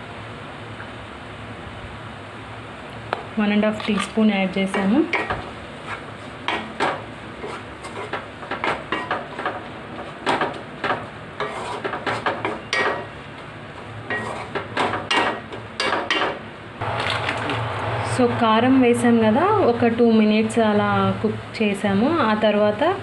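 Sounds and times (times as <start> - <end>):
spatula scraping a wok: 5.1 - 13.2, 13.8 - 16.2.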